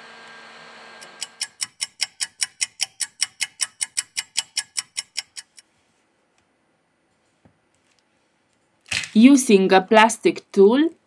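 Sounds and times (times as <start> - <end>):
fast clock ticking: 1.0 - 5.6.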